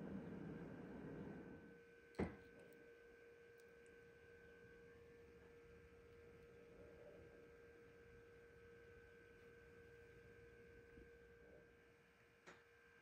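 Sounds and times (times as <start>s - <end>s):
faint steady hum: 0.0s - 13.0s.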